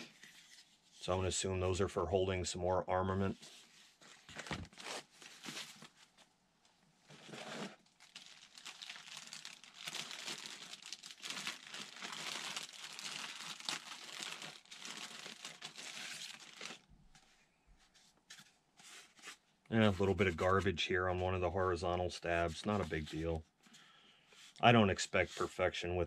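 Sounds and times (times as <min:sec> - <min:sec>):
plastic bags crinkling: 0:07.2 - 0:17.1.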